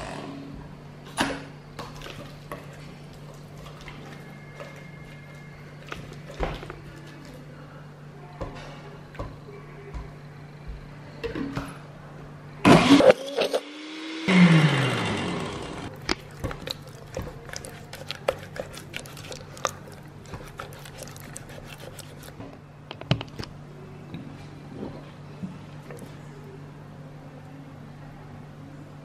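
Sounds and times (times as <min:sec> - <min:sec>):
blender motor whirring: 0:12.7 - 0:15.9
spatula scraping glass jar: 0:20.3 - 0:22.3.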